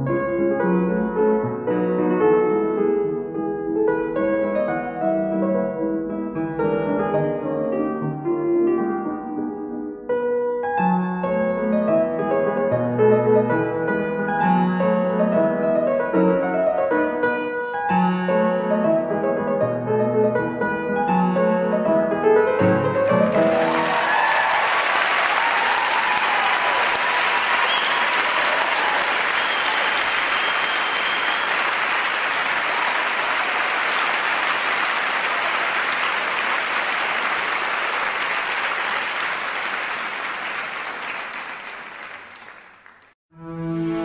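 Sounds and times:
audience clapping: 22.8s - 43.2s.

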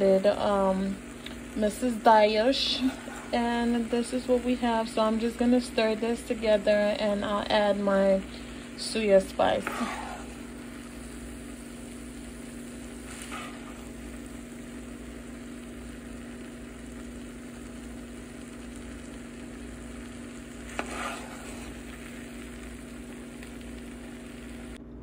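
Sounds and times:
rice sizzling in a pan: 0.0s - 24.8s
steady low hum: 0.0s - 25.0s
spoon scraping a pan: 9.6s - 10.4s, 13.0s - 13.9s, 20.6s - 21.9s.

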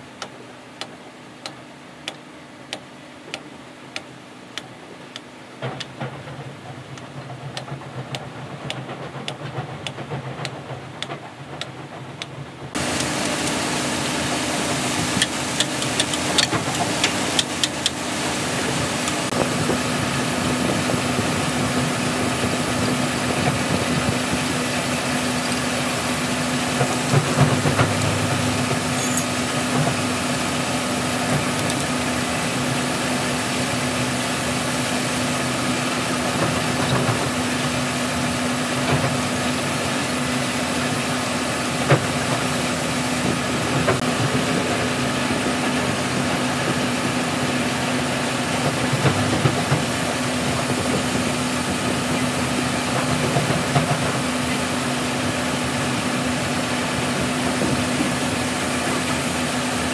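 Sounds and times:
engine running with hiss: 12.7s - 59.9s
hammer striking metal wrench: 28.8s - 29.5s
metallic clanks: 28.8s - 29.5s.

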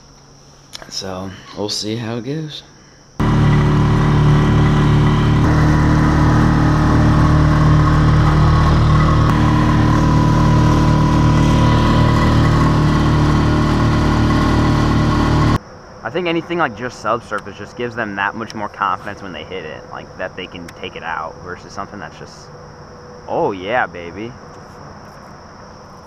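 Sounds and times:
outboard motor running: 3.2s - 15.6s.

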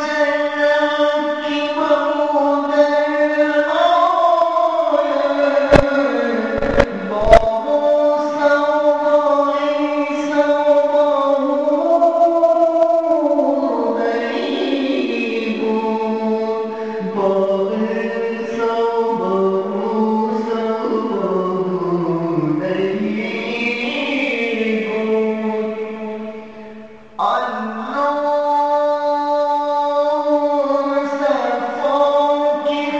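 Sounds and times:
devotional chant singing: 0.0s - 32.9s
sharp click: 6.6s - 7.5s.

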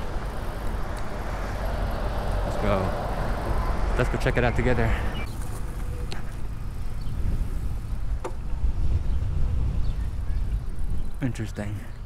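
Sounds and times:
wind rumble on microphone: 4.6s - 11.3s.

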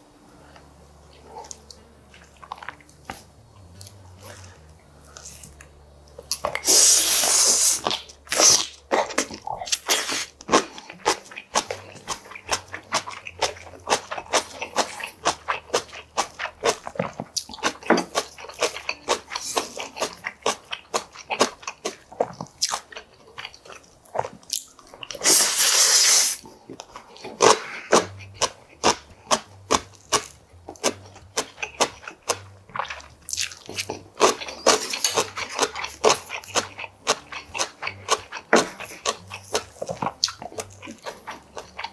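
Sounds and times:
man chewing with wet smacks: 0.5s - 41.9s.

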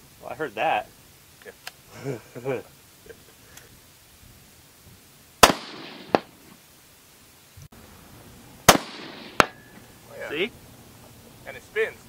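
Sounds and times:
bullet striking steel target: 5.4s - 6.3s, 8.7s - 9.7s
rifle shots: 5.4s - 6.4s, 8.6s - 9.7s.

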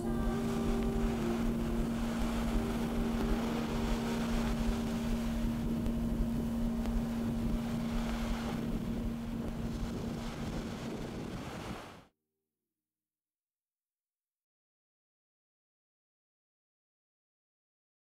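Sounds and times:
steady low tone: 0.0s - 11.8s
small waves washing onto sand: 0.0s - 12.0s
wind rumbling on microphone: 0.0s - 12.1s.

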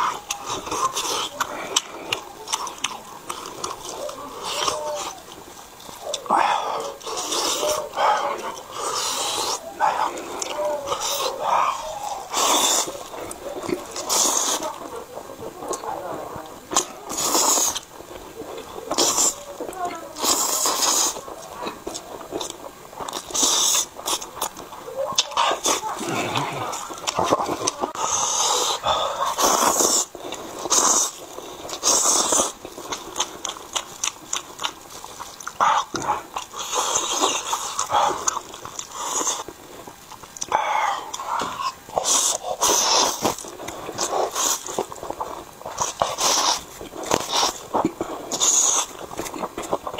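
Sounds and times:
wet chewing: 0.0s - 49.9s
person slurping noodles: 6.2s - 14.9s, 16.7s - 17.9s, 20.2s - 21.2s, 22.4s - 24.3s, 25.2s - 33.1s, 40.4s - 49.8s.

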